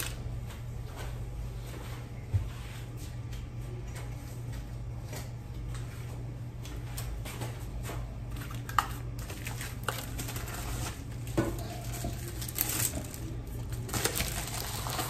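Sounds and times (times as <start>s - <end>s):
steady low hum: 0.0s - 15.0s
packing material crinkling: 8.4s - 15.0s.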